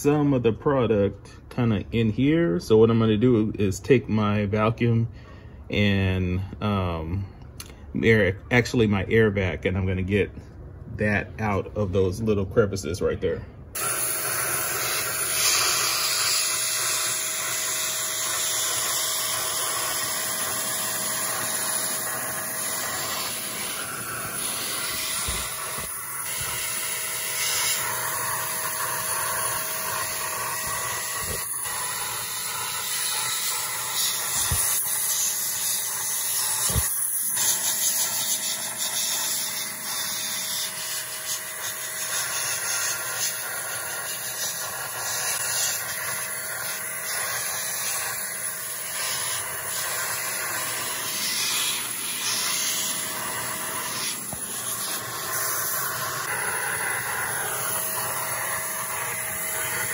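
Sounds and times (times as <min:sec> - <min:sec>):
handheld air vacuum running: 0:13.8 - 0:59.9.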